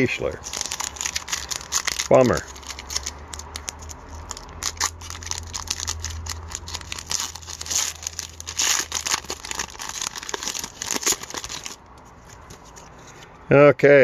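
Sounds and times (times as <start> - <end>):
foil wrapper tearing and crinkling: 0.0 - 11.8.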